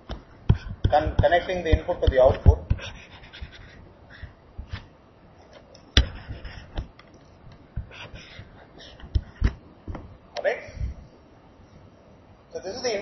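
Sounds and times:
stylus tapping on tablet screen: 5.9 - 8.4, 9.0 - 10.1.

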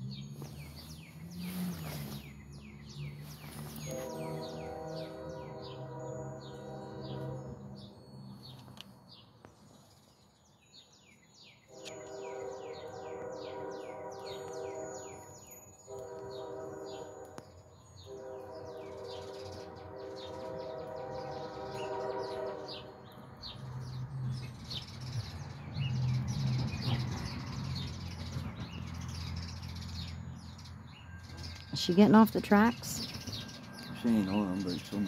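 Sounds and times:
diesel engines rumbling: 0.0 - 9.0, 16.2 - 35.0
songbirds chirping: 0.0 - 35.0
locomotive air horn blasts: 1.2 - 8.0, 11.7 - 24.0, 29.0 - 35.0.

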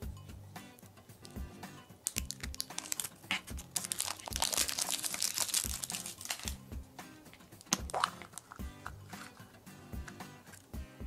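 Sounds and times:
wrapper crinkling and tearing: 2.0 - 6.6, 7.6 - 8.6.

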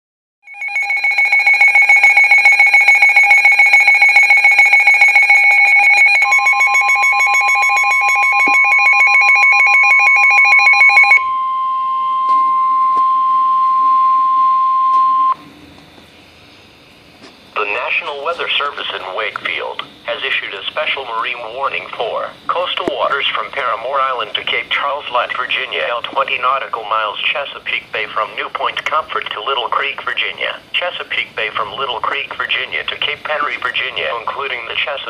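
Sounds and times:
rapid pulsing alarm beeps: 0.5 - 15.4
steady warning tone: 0.5 - 35.0.

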